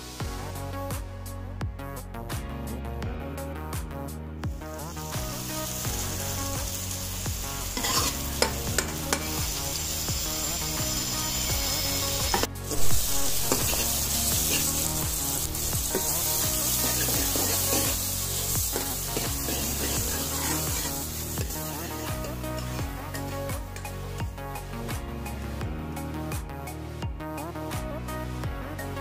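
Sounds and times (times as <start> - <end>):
onions sizzling in butter: 4.6 - 23.8.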